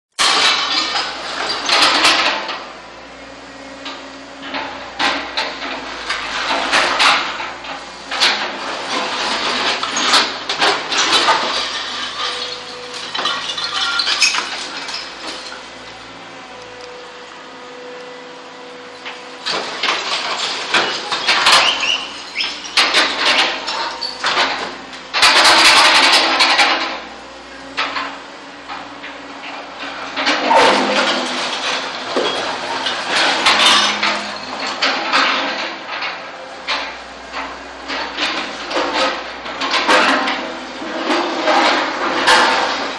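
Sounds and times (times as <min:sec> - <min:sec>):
machine engines running: 0:00.2 - 0:42.9
rubble clattering and scraping: 0:04.4 - 0:15.9, 0:19.4 - 0:27.0, 0:29.4 - 0:42.9.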